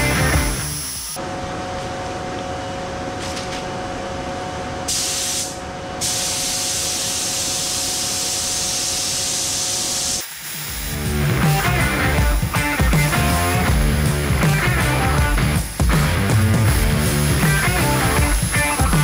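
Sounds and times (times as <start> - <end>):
paint spray gun hissing: 4.9 - 13.6, 15.5 - 19.0
air pump humming: 4.9 - 19.0.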